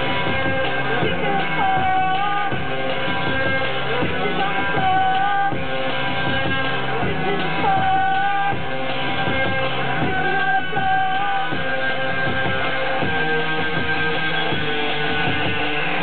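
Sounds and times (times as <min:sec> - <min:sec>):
steady electronic beat: 0:00.0 - 0:16.0.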